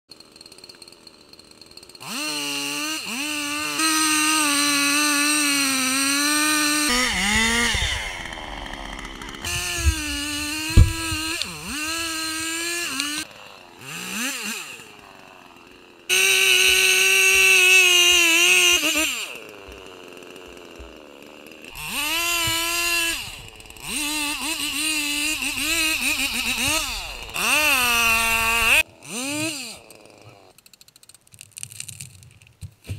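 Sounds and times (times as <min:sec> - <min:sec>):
chainsaw revving: 0:00.2 - 0:30.6
sharp thump: 0:09.4 - 0:11.5.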